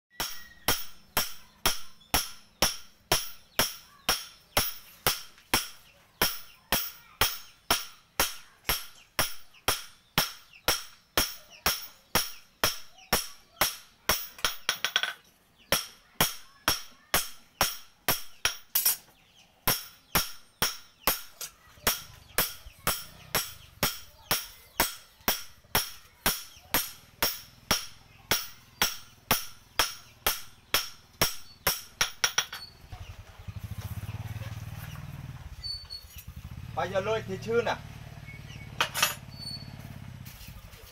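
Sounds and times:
hammer striking knife on anvil: 0:00.2 - 0:19.0, 0:19.7 - 0:32.7.

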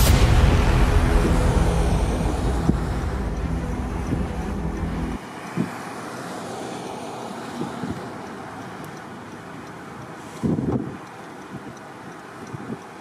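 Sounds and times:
steady hiss: 0:00.0 - 0:06.6
vehicle engine running: 0:00.0 - 0:06.7.

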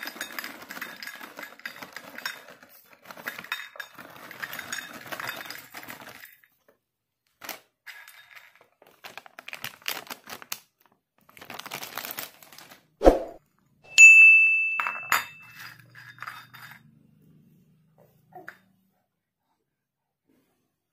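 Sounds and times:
plastic packet crinkling: 0:08.8 - 0:12.9
glass ding ringing: 0:13.9 - 0:15.6.

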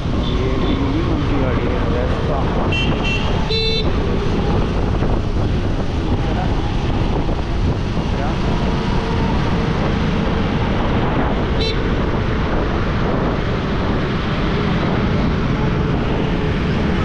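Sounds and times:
wind and road noise: 0:00.0 - 0:17.0
horn toot: 0:02.6 - 0:04.0.

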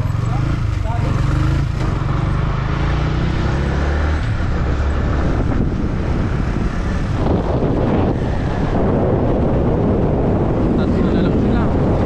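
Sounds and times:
motorcycle engine accelerating: 0:00.0 - 0:12.0
wind noise on microphone: 0:03.4 - 0:12.0.

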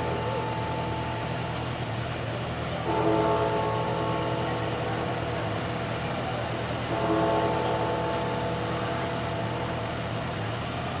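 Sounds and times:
low steady hum: 0:00.0 - 0:06.2
large bell striking: 0:02.7 - 0:10.4.

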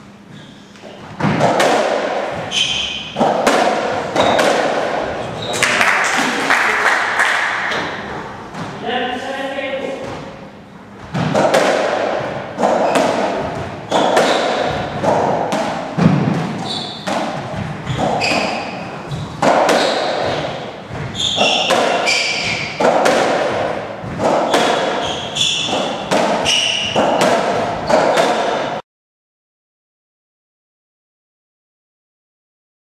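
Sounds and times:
ball struck by racquets: 0:01.2 - 0:08.8, 0:11.0 - 0:28.8
shoes squeaking on wooden floor: 0:02.3 - 0:03.3, 0:03.9 - 0:05.8, 0:12.4 - 0:15.4, 0:16.0 - 0:22.8, 0:24.0 - 0:28.1.

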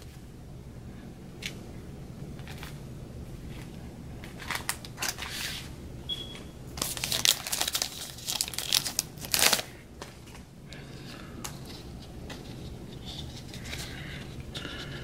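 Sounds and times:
foil wrapper crinkling and tearing: 0:04.4 - 0:05.5, 0:06.8 - 0:09.8.

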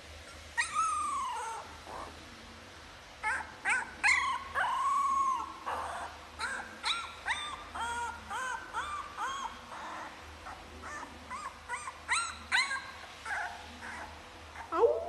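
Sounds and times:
puppy yipping: 0:00.3 - 0:02.1, 0:03.2 - 0:15.0
puppy howling: 0:14.6 - 0:15.0.

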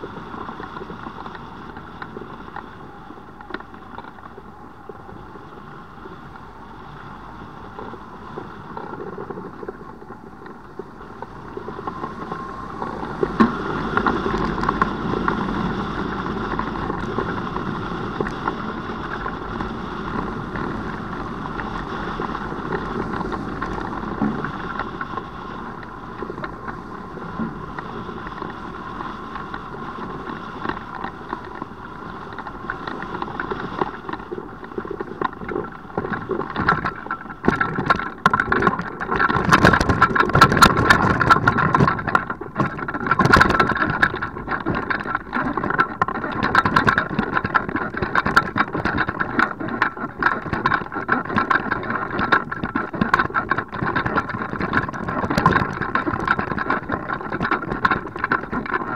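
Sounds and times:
wind rushing: 0:10.7 - 0:31.0.

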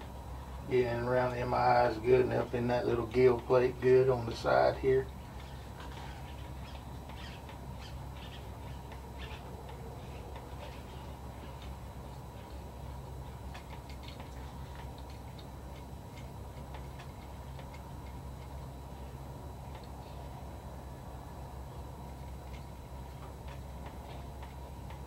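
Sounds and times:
low hum: 0:00.0 - 0:25.0
small tools ticking and clicking: 0:13.3 - 0:18.6.

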